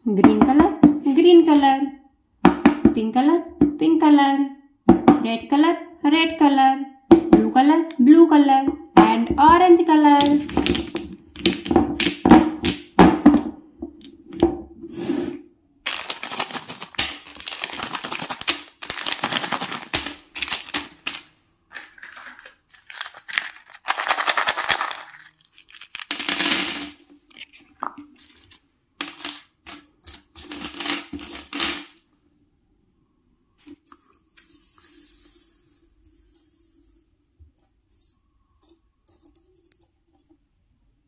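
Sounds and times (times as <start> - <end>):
plastic packets crinkling and tearing: 15.8 - 32.0
candies clicking and rattling: 15.9 - 28.0, 29.0 - 32.0.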